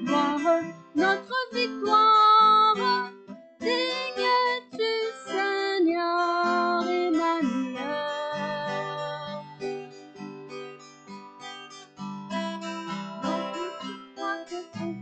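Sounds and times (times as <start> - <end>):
woman singing worship song: 0.0 - 9.6
strummed acoustic guitar: 0.0 - 15.0.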